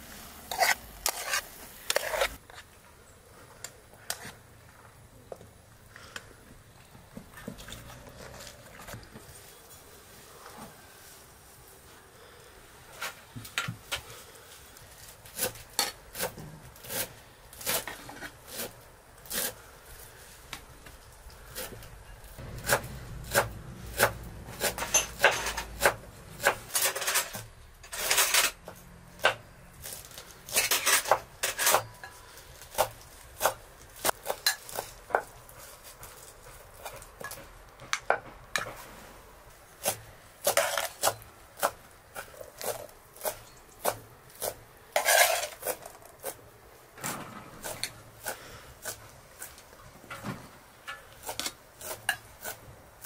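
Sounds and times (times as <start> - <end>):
spoons scraping dishes: 0.5 - 2.4, 45.0 - 45.9.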